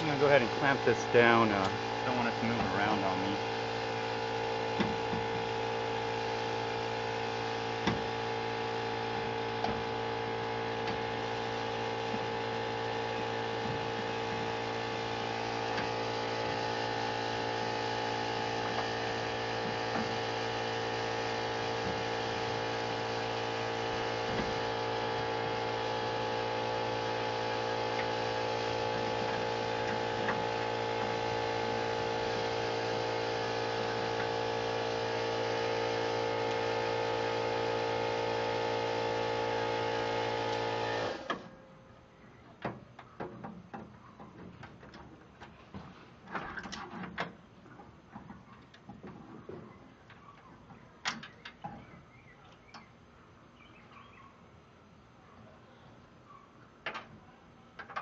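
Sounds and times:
steady hum: 0.0 - 42.3.

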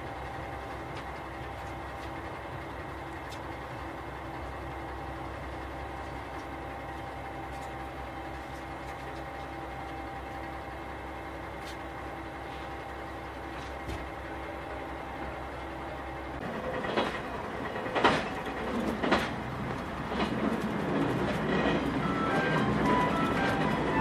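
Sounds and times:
diesel engine idling: 0.0 - 24.0.

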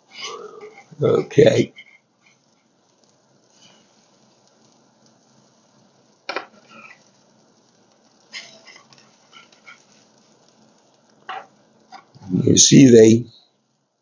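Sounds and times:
pancakes sizzling on griddle: 0.0 - 14.0
spatula clacking on griddle: 6.3 - 12.2.

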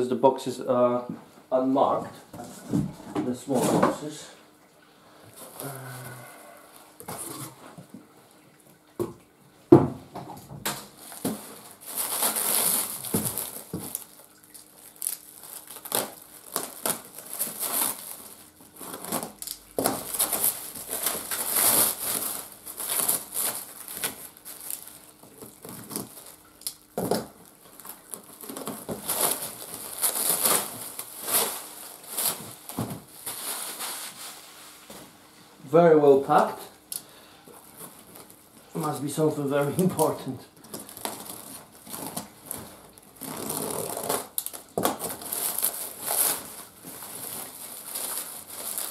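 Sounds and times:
plastic wrapping crinkling: 5.3 - 7.8, 10.6 - 35.2, 36.1 - 48.9.

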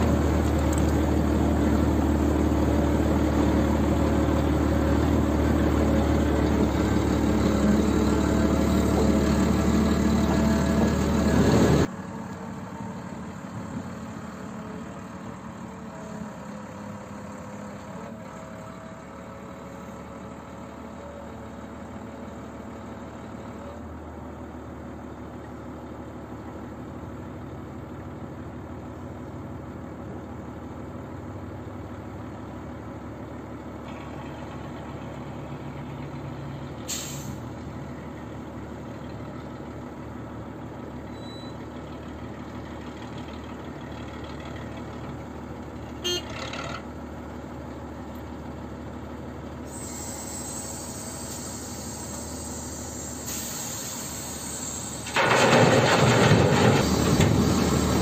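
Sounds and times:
heavy diesel engine under load: 0.0 - 58.0
sharp hiss of released air: 36.9 - 37.5, 49.7 - 55.2.

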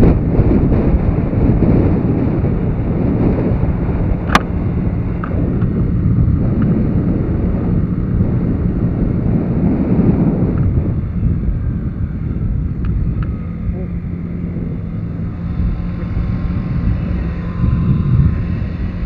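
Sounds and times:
small motorbike engine running: 0.0 - 19.0
wind buffeting microphone: 0.0 - 19.0
sharp click: 4.3 - 4.5.

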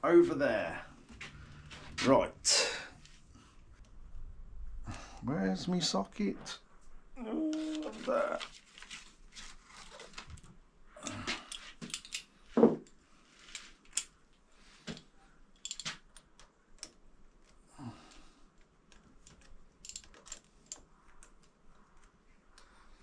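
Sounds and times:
metal clinks of hand tools: 15.6 - 16.0, 19.8 - 20.4.

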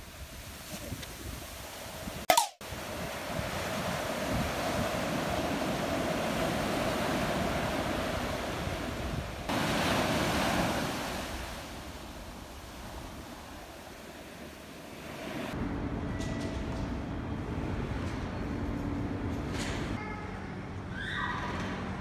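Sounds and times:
surf washing on sand: 0.0 - 15.6.

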